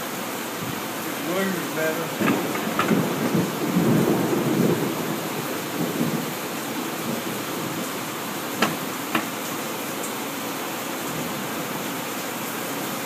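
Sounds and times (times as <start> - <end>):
heavy rain on roof: 0.0 - 13.0
thunder rumble: 2.0 - 9.3
sharp wooden knock: 2.2 - 3.0, 8.6 - 9.4.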